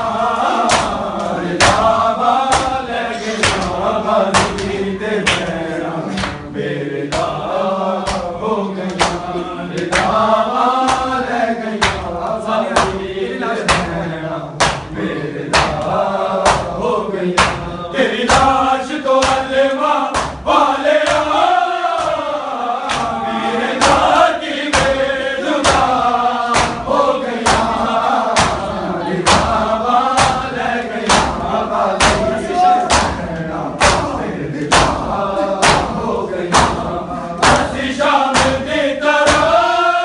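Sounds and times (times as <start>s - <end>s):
men chanting together: 0.0s - 40.0s
hands slapping bare chests: 0.7s - 2.8s, 3.4s - 6.4s, 8.0s - 10.2s, 10.8s - 11.2s, 11.8s - 12.1s, 14.6s - 16.8s, 17.4s - 17.6s, 19.2s - 19.5s, 20.1s - 20.4s, 22.0s - 23.1s, 23.8s - 25.0s, 25.6s - 27.8s, 28.4s - 31.4s, 32.0s - 33.2s, 33.8s - 39.6s.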